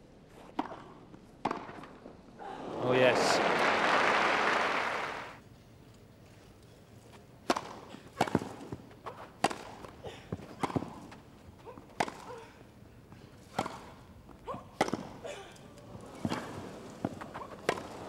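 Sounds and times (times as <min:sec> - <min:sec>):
rackets hitting tennis balls: 0:00.5 - 0:02.1, 0:07.4 - 0:18.0.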